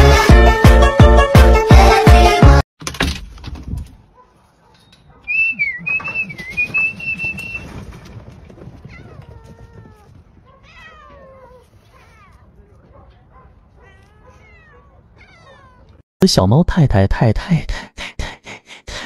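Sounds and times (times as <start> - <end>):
cats meowing: 8.8 - 16.0.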